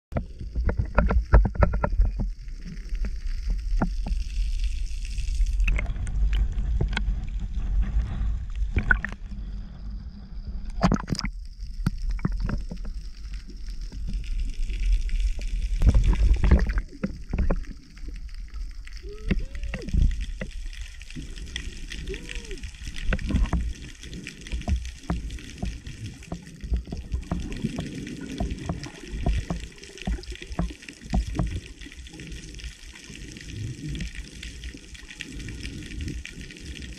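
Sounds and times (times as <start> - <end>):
water sloshing and gurgling: 0.1 - 36.9
low rumble: 1.3 - 29.8
bubbles popping and splashes: 8.7 - 9.2, 10.7 - 13.0, 13.9 - 32.2.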